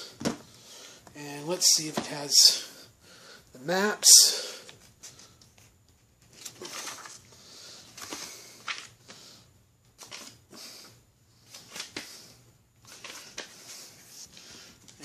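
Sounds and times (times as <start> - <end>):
thin pages turning and rustling: 6.2 - 7.3.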